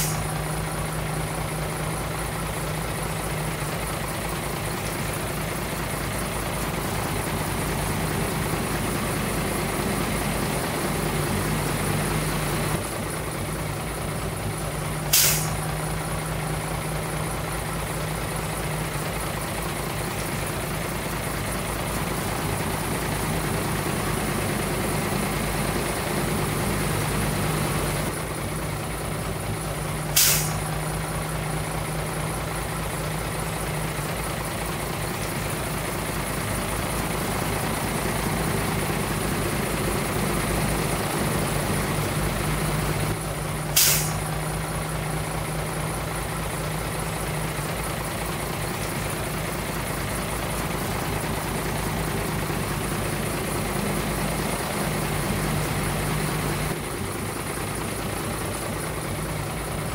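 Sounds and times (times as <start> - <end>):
air brake hisses: 0.0 - 0.4, 15.0 - 15.8, 30.1 - 30.7, 43.6 - 44.3
diesel truck engine running: 0.0 - 59.9.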